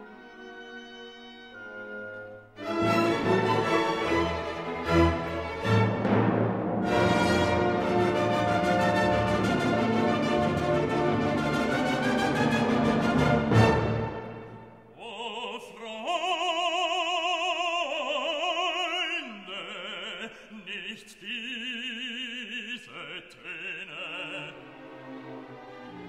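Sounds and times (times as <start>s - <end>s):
orchestral chord: 1.6s - 14.7s
operatic voice singing: 14.9s - 24.9s.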